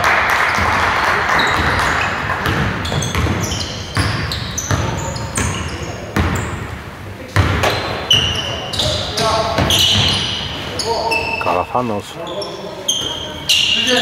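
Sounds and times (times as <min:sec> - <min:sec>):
sneakers squeaking on floor: 0:00.4 - 0:14.0
basketball bouncing on court: 0:00.5 - 0:10.6.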